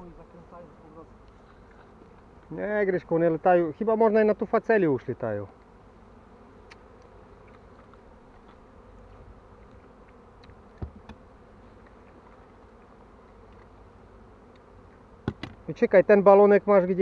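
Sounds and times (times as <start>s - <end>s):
bees humming: 0.0s - 17.0s.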